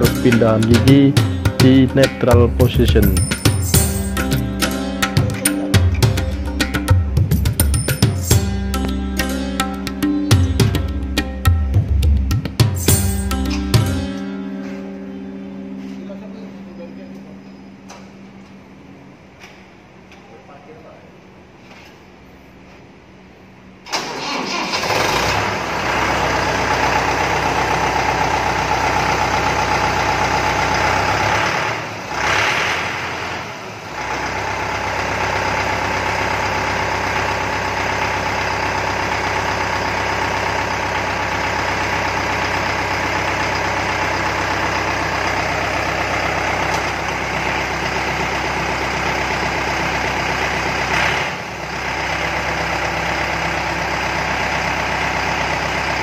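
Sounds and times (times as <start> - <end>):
tractor diesel engine idling: 0.0 - 7.1, 23.9 - 56.0.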